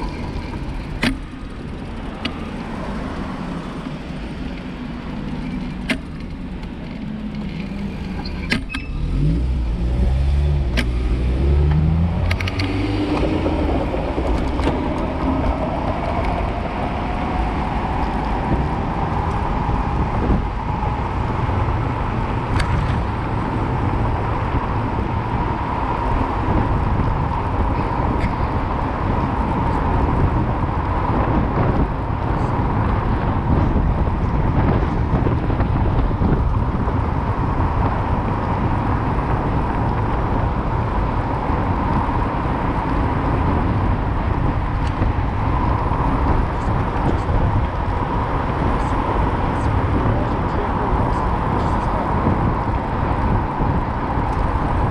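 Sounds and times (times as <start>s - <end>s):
wind: 0.0s - 54.9s
steady whine rising in pitch: 9.4s - 22.5s.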